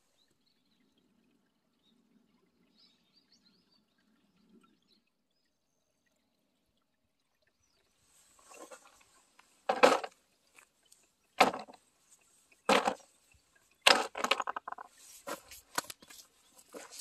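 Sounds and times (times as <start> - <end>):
rocks clacking into plastic box: 9.7 - 10.2, 11.4 - 11.8, 12.7 - 13.0, 13.8 - 17.0.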